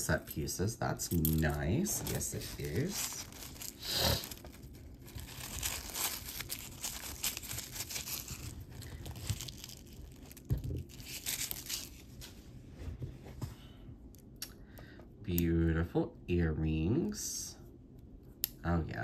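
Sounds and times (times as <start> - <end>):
wrapping crinkling and tearing: 1.0 - 12.4.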